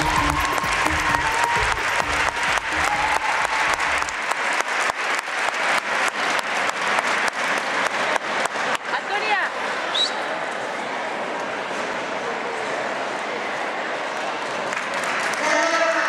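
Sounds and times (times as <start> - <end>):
music: 0.0 - 4.2
audience applauding: 0.0 - 9.2, 14.0 - 16.0.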